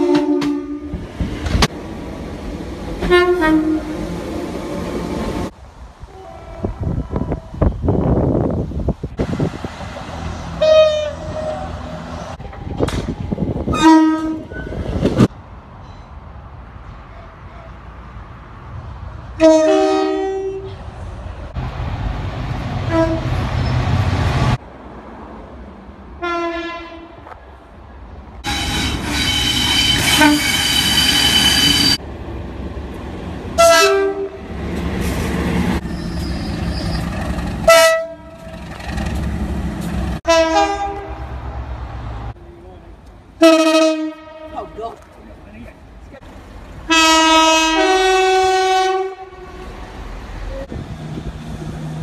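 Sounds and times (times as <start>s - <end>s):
two-tone train horn blasts: 0.0s - 1.0s, 3.0s - 3.9s, 6.1s - 7.7s, 10.6s - 11.8s, 13.7s - 14.6s, 19.4s - 20.8s, 22.9s - 23.4s, 26.2s - 27.2s, 28.4s - 32.0s, 33.6s - 34.4s, 37.6s - 38.4s, 40.2s - 41.3s, 43.4s - 44.7s, 46.9s - 49.7s
passing train rumble: 0.0s - 52.0s.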